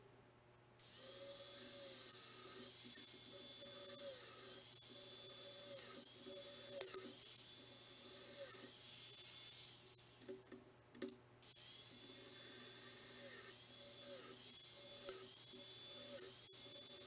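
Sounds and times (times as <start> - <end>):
power tool motor whining: 0.8 - 10.4, 11.4 - 17.0.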